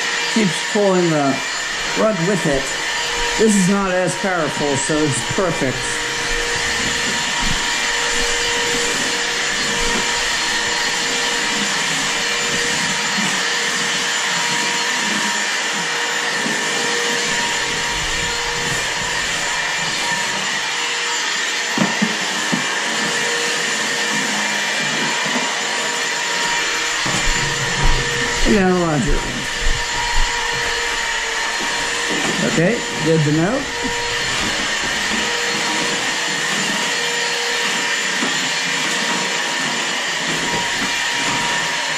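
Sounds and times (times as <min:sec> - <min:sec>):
stick vacuum cleaner running: 0:00.0 - 0:41.9.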